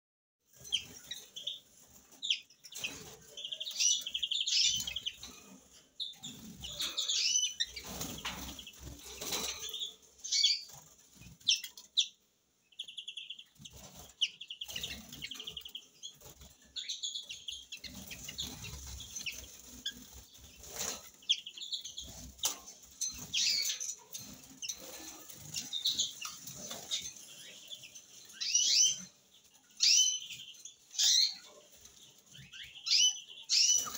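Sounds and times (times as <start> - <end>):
wings fluttering: 0.5 - 11.9, 13.4 - 28.5
birds rustling in cage: 0.5 - 12.1, 12.9 - 33.9
finches chirping and trilling: 0.5 - 33.9.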